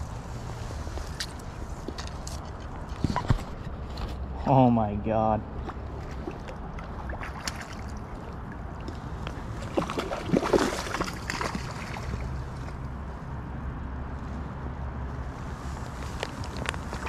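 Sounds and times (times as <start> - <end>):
creek water flowing: 5.5 - 13.0
splashing and rustling: 5.6 - 13.0, 15.4 - 17.0.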